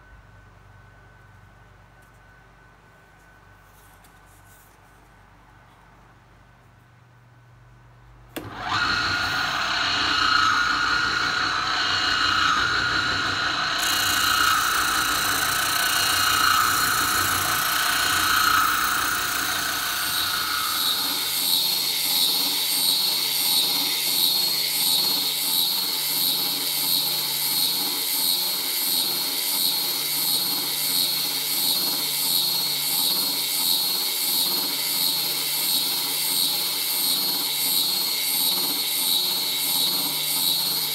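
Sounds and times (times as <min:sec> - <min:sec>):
spindle sander running: 0:08.4 - 0:40.9.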